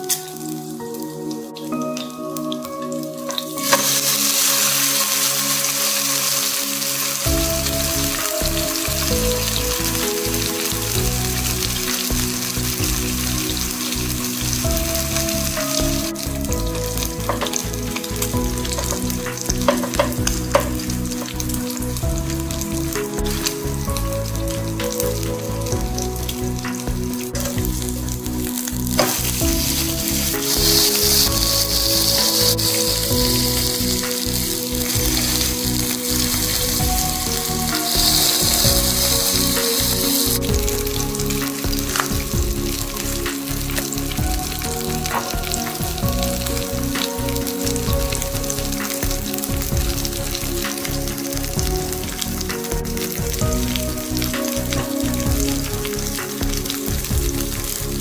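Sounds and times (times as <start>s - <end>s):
pork sizzling in a frying pan: 0.0s - 58.0s
fat crackling and spitting: 24.5s - 58.0s.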